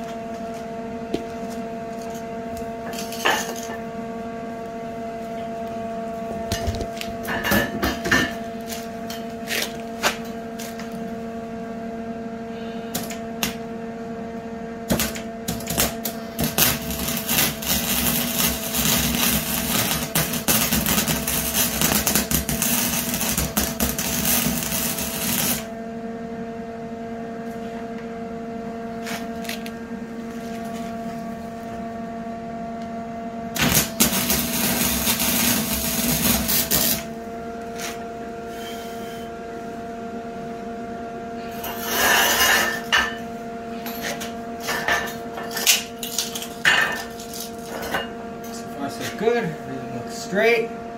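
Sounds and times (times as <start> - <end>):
steady hum: 0.0 - 50.9
welding arc crackling: 14.9 - 25.7, 33.6 - 37.1.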